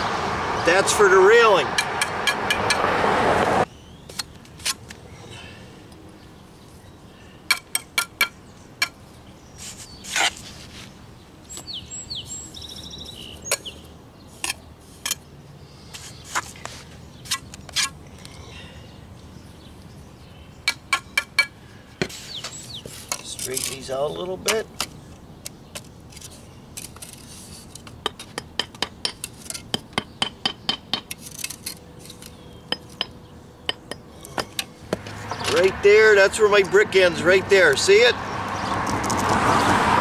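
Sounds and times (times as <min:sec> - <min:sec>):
loud rushing noise: 0:00.0 - 0:03.7.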